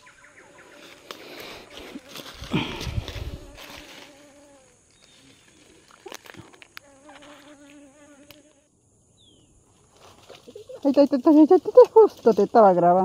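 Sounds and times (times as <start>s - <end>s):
flying insect buzzing: 0.0s - 8.7s.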